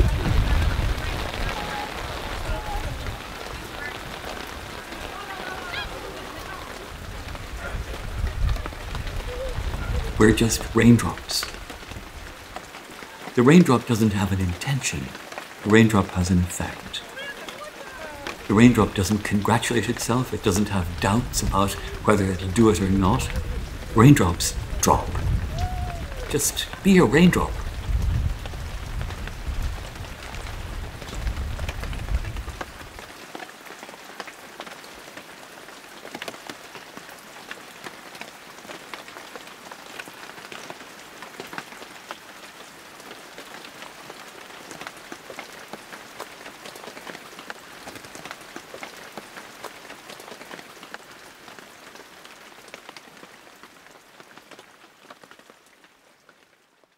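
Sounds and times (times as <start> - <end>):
rain on hard wet ground: 0.0 - 56.9.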